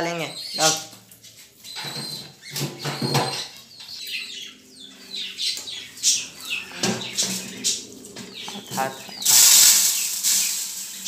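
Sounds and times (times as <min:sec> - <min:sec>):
high falling chirps: 0:04.0 - 0:11.0
grain rustling: 0:08.8 - 0:11.0.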